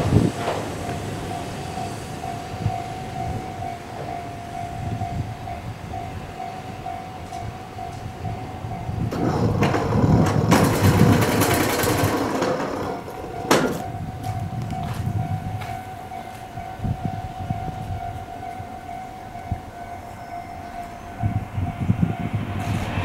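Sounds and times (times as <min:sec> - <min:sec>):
electric train braking: 0:00.0 - 0:05.9, 0:06.6 - 0:16.4, 0:18.2 - 0:23.0
steady tone: 0:13.0 - 0:23.0.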